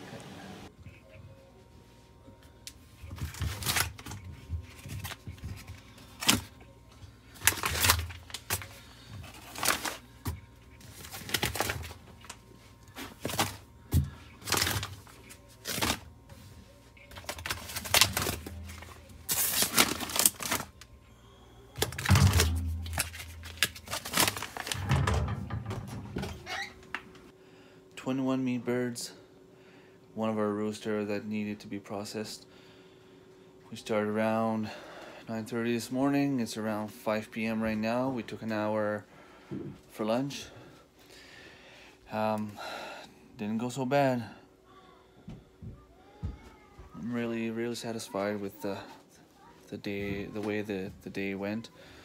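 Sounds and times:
plastic bags crinkling: 0:03.1 - 0:06.6, 0:07.2 - 0:16.2, 0:16.8 - 0:21.0, 0:21.7 - 0:26.7.

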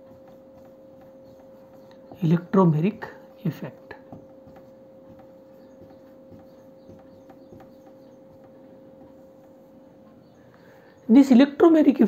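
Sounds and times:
marker squeaking on whiteboard: 0:00.0 - 0:10.4
steady low hum: 0:00.0 - 0:12.0.

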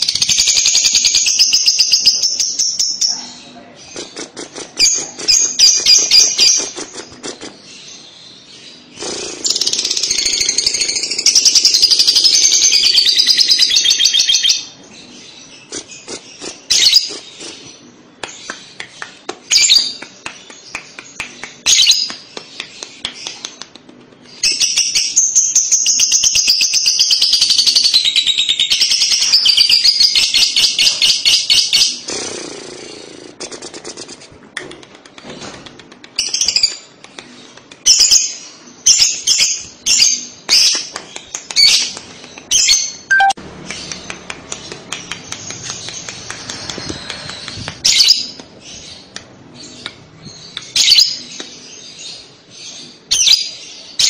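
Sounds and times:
bird rapid high chattering: 0:03.8 - 0:07.7, 0:08.9 - 0:14.4, 0:15.6 - 0:17.8, 0:25.9 - 0:38.2
bird short chirping bursts: 0:43.1 - 0:43.4.

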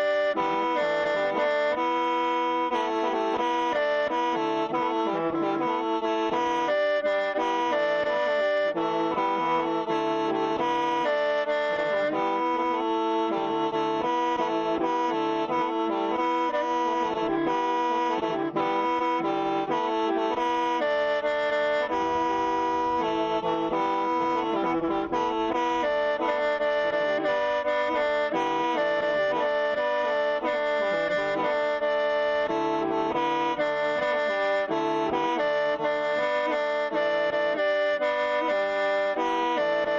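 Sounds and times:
bamboo mouth organ chords: 0:13.3 - 0:27.8.

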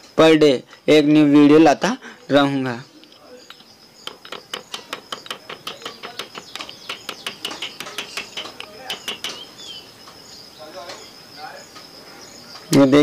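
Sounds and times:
metal rod tapping metal: 0:03.0 - 0:09.5.

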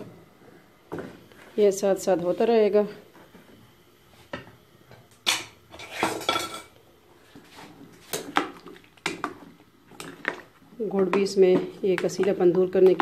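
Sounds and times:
kitchenware clinking and knocking: 0:05.3 - 0:06.7.

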